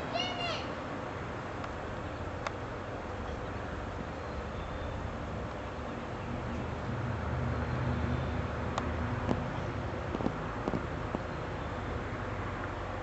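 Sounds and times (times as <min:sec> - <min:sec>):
road traffic rumble: 0:00.0 - 0:13.0
vehicle passing: 0:03.6 - 0:13.0.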